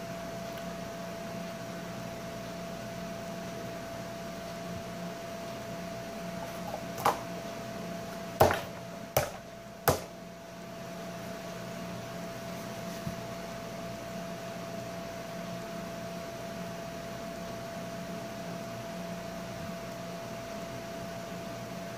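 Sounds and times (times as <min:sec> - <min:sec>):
steady appliance hum: 0:00.0 - 0:21.9.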